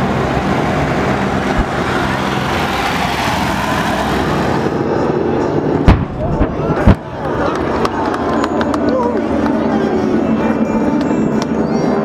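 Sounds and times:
aircraft engines running: 0.0 - 12.0
loud pyrotechnic bang: 5.8 - 7.0.

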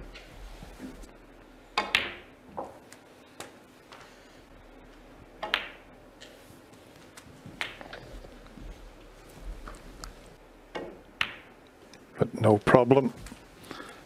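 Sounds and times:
quiet hall ambience: 0.0 - 14.0
snooker balls clicking: 1.7 - 4.1, 5.3 - 6.4, 7.1 - 12.0.

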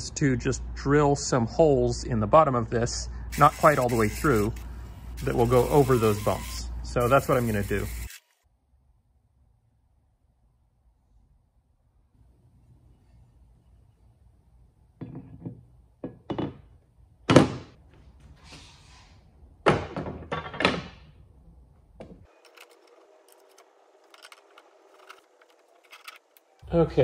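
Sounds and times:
heavy metal parts clanking: 22.3 - 26.6.

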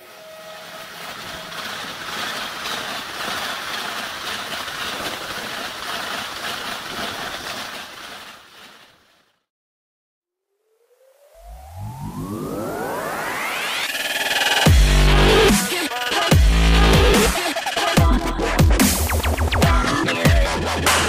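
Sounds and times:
train horn: 0.0 - 1.0
train passing at speed: 0.0 - 6.9.

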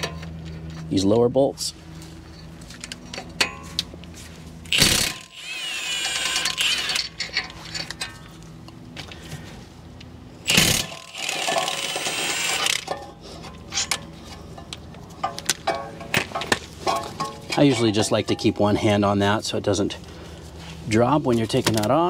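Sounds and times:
impact wrench motor whining: 4.7 - 7.4, 10.4 - 13.0
impact wrench hammering: 10.5 - 13.1.

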